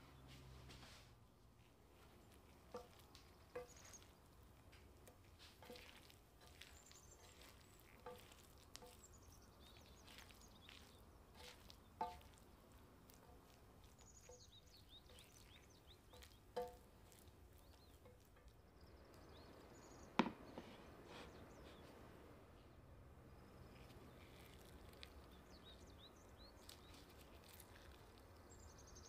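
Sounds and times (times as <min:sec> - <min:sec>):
stirring rice in a pan: 0:01.9 - 0:19.6, 0:23.6 - 0:29.0
spatula knocking on metal pan: 0:11.4 - 0:12.4, 0:16.1 - 0:17.2.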